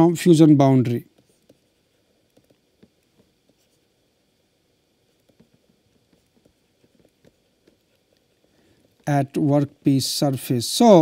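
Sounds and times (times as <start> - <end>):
stylus tapping on tablet screen: 1.2 - 3.8, 5.2 - 8.3.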